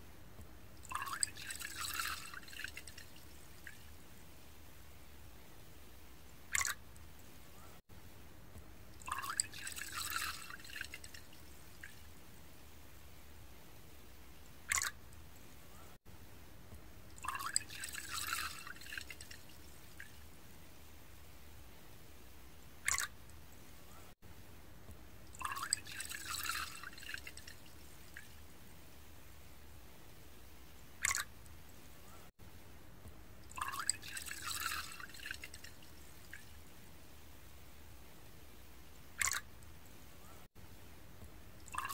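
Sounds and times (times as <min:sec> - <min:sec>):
liquid pouring into a ceramic cup: 0:00.9 - 0:03.8, 0:09.0 - 0:12.0, 0:17.2 - 0:20.1, 0:22.9 - 0:23.1, 0:25.4 - 0:28.2, 0:31.0 - 0:31.3, 0:33.5 - 0:36.4, 0:41.7 - 0:41.9.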